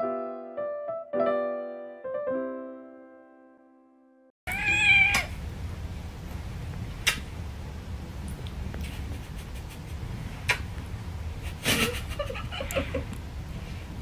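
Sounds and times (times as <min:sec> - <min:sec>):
kitten meowing: 0:04.5 - 0:05.4.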